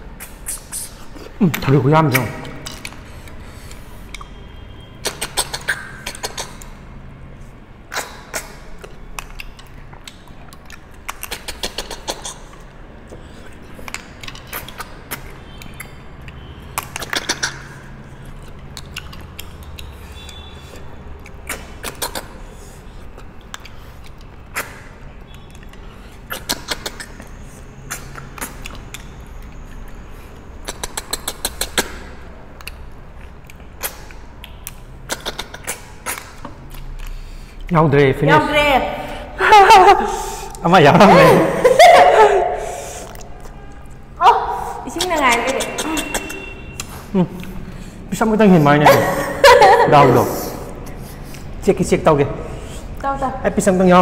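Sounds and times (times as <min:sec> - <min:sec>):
quick slurps: 0:00.1 - 0:01.4.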